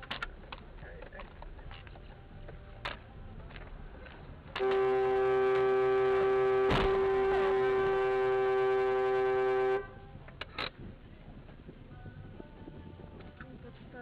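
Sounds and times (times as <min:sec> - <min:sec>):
car horn blast: 0:04.6 - 0:10.0
thump: 0:06.7 - 0:07.0.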